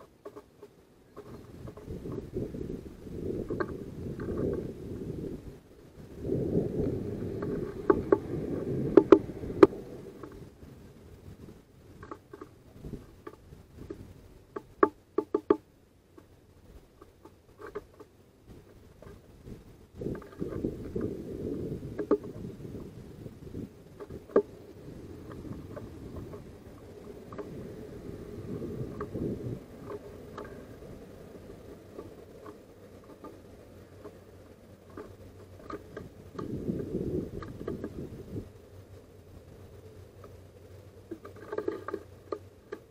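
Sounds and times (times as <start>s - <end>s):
bird pecking on wooden tray: 0.0s - 4.8s, 6.5s - 10.5s, 11.9s - 19.3s, 20.0s - 38.4s, 40.1s - 42.9s
low rumble: 2.0s - 11.7s.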